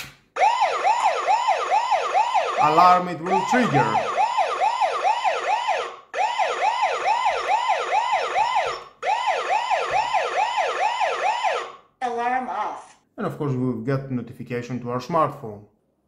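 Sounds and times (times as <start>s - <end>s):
alarm siren wailing: 0.4s - 11.9s.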